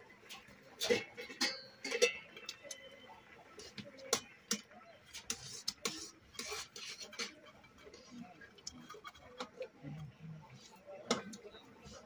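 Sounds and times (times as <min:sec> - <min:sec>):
fingers clinking on metal plates: 0:00.8 - 0:03.0.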